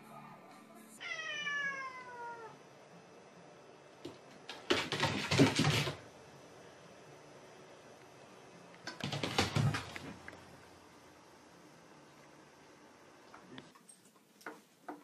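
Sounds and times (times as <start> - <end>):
cat meowing: 1.0 - 2.6.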